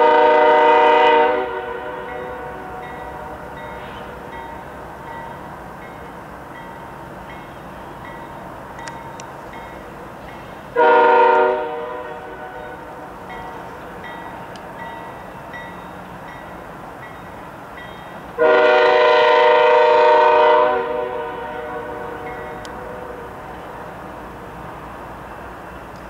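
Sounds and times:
train air horn blast: 0.0s - 4.3s, 10.7s - 13.2s, 18.4s - 23.5s
moving train: 0.0s - 26.0s.

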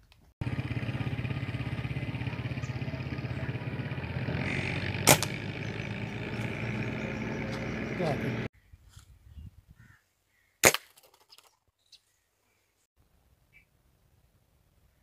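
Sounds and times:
engine chugging: 0.4s - 8.5s
sharp crack: 4.7s - 6.2s, 10.6s - 11.3s.

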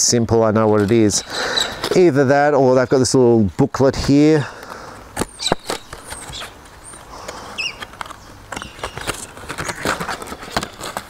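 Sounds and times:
paper booklet crinkling: 5.2s - 11.0s.

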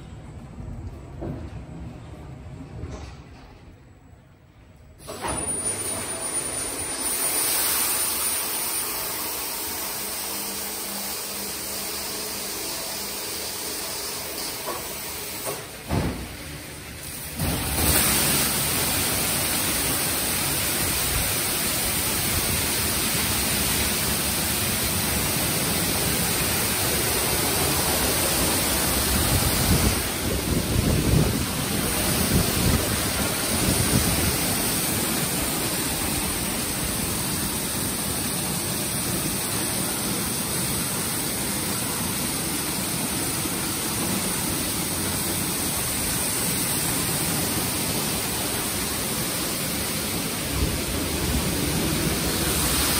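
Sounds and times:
car wash water spray: 5.0s - 52.9s.

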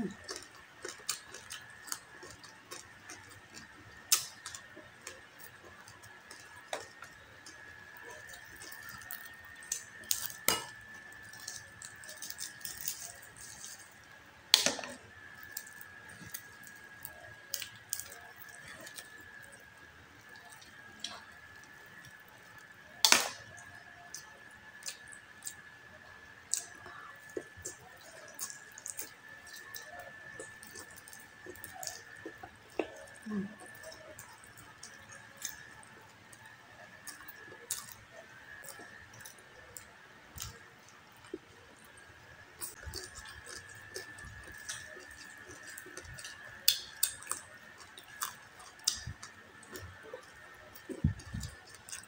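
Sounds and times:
faint high whine: 0.0s - 52.0s
wet chewing and mouth clicks: 0.1s - 14.0s, 42.6s - 52.0s.

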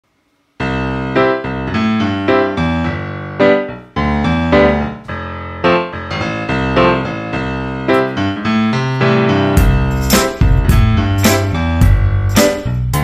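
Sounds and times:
piano music: 0.6s - 13.0s.

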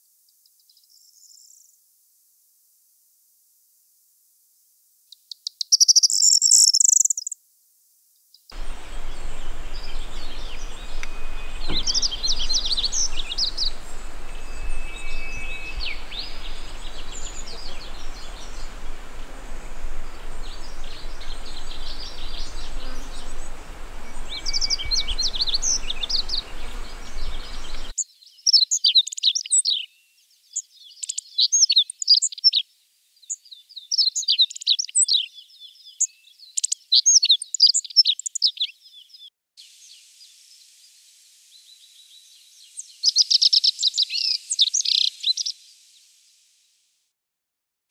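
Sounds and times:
background hiss: 6.1s - 28.0s, 39.6s - 47.1s
high bird jingle: 8.6s - 27.9s
bunting birdsong: 8.6s - 28.6s.

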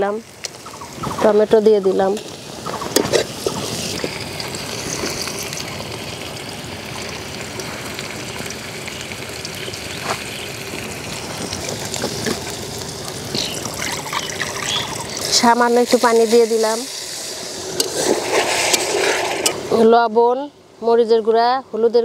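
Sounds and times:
vegetables frying in hot oil: 0.0s - 20.1s.

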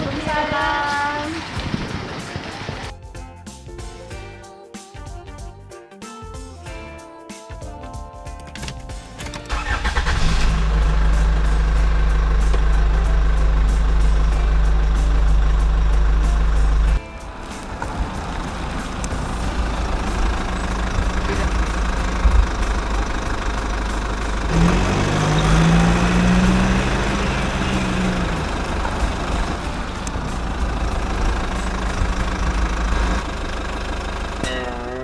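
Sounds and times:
van engine idling and revving: 8.8s - 35.0s.

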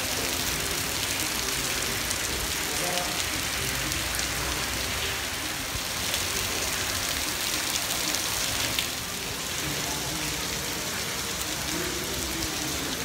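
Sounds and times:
rain on wet paving: 0.0s - 13.0s.

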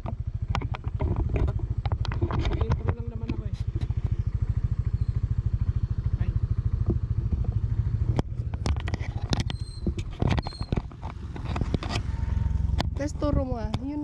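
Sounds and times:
handling clicks and scrapes: 0.0s - 4.1s, 8.1s - 13.0s
scooter engine idling: 0.0s - 14.0s
low rumble: 0.3s - 14.0s.

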